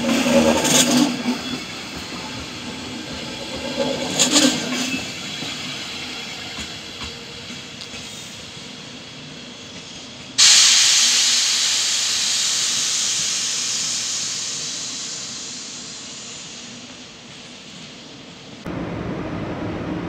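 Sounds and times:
compressed air hissing: 9.8 - 18.1.

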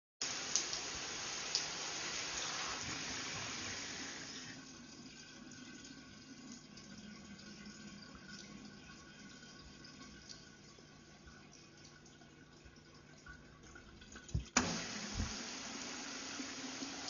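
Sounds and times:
shower water running: 0.2 - 17.0.

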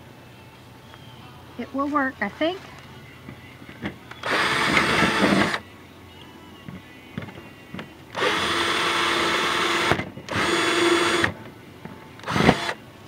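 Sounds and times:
cordless drill boring through metal: 4.2 - 5.6, 8.1 - 11.4, 12.2 - 12.8.

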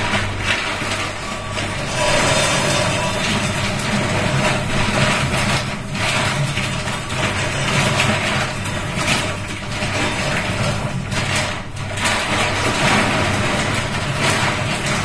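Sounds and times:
machine hum: 0.0 - 10.5.

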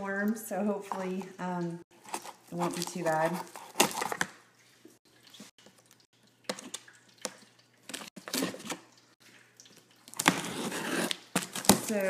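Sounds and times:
cardboard box rustling: 2.0 - 4.3.

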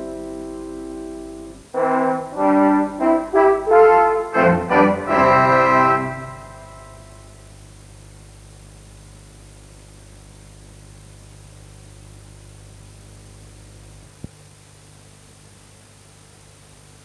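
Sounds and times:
faint tape hiss: 0.0 - 17.0
mains hum: 0.0 - 17.0.

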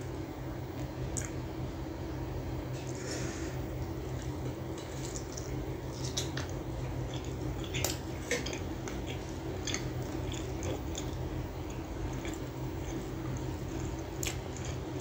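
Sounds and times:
steady low hum: 0.0 - 15.0
wet chewing: 5.0 - 15.0.

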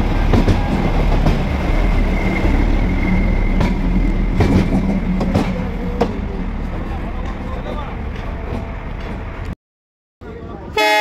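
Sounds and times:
train rumbling past: 0.0 - 9.6
wheels clacking over rail joints: 3.5 - 6.2.

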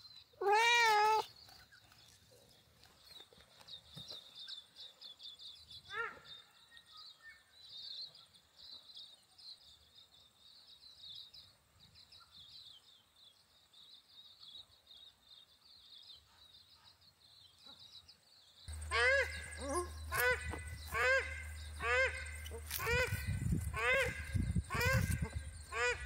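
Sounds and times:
birds twittering: 0.0 - 26.0
lower louder bird call: 18.7 - 26.0.

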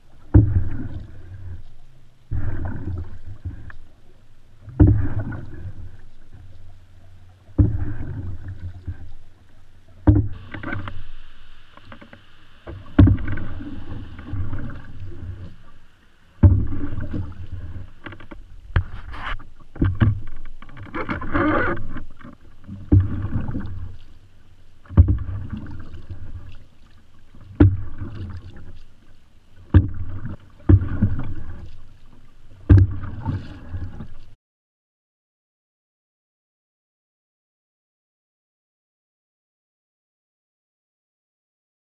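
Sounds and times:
paddle knocking canoe hull: 0.0 - 15.7, 16.4 - 24.1, 24.8 - 34.3
paddle splashing water: 0.0 - 34.4.

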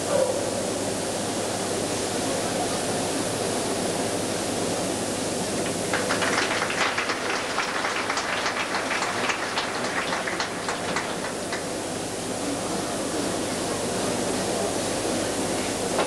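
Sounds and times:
background hiss: 0.5 - 16.0
audience applauding: 5.6 - 12.0.

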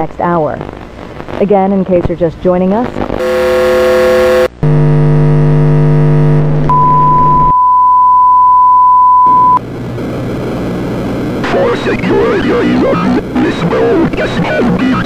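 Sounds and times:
static hiss: 0.6 - 1.5, 2.8 - 7.5, 9.6 - 15.0
loud electronic buzz: 3.1 - 7.5
high test tone: 3.2 - 9.6.

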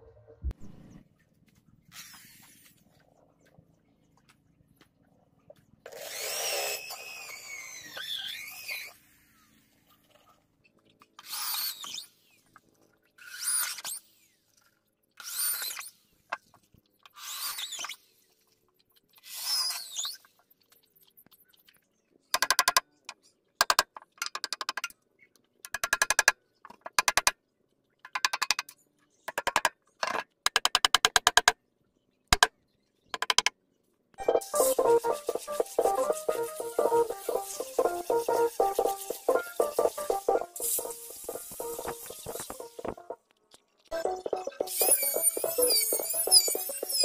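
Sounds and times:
electric drill boring into wood: 5.9 - 7.8.

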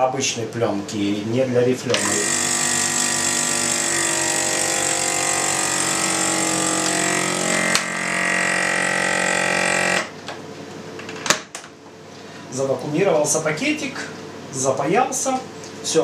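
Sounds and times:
vacuum sealer pump motor running: 1.9 - 10.2.

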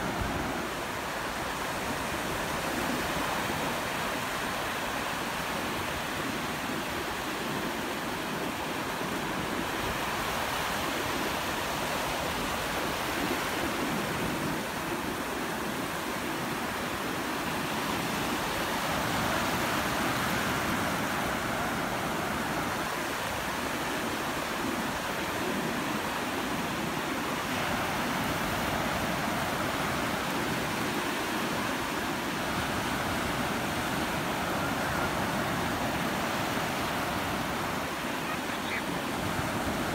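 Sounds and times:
ocean surf breaking: 0.0 - 39.9.

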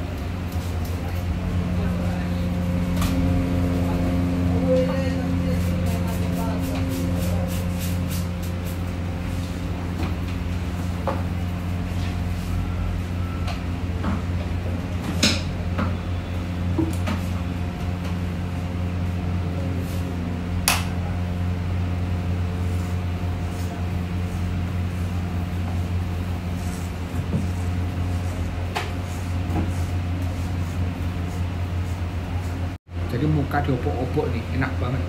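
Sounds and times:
low machine hum: 0.0 - 35.0.

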